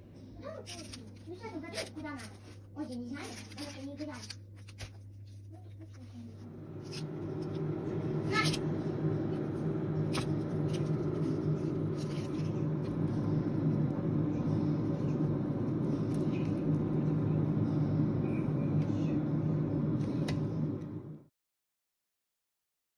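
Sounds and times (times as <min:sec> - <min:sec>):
low machine hum: 0:00.0 - 0:21.3
baking paper crackles: 0:00.5 - 0:07.4.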